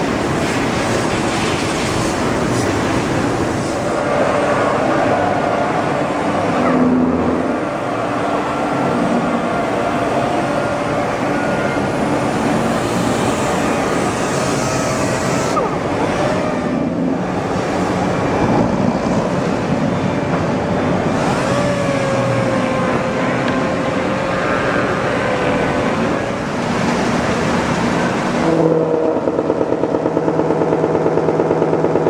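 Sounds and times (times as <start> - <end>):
orbital sanders: 11.8 - 16.4.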